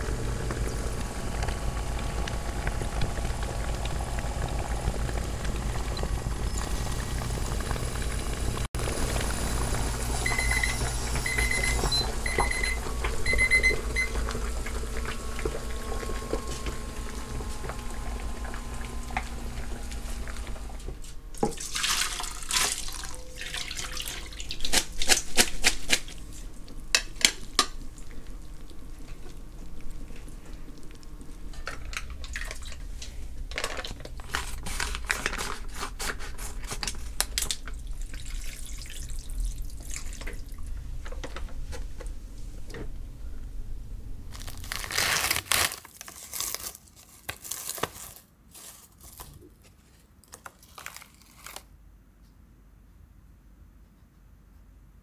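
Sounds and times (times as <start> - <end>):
hot water splashing into sink: 0.1 - 29.5, 37.4 - 40.7
kitchen timer beeping: 9.6 - 20.4.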